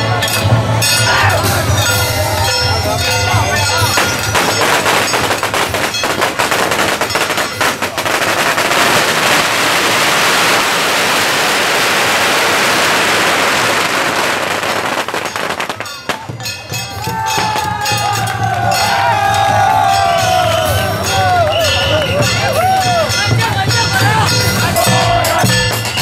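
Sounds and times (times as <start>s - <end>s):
firecrackers crackling: 3.5s - 18.2s.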